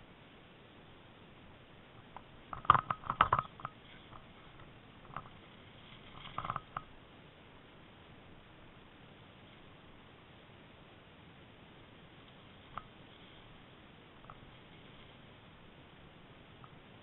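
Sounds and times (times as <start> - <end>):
faint steady hiss: 0.0 - 17.0
bicycle mount rattling: 2.5 - 5.4, 6.2 - 6.9.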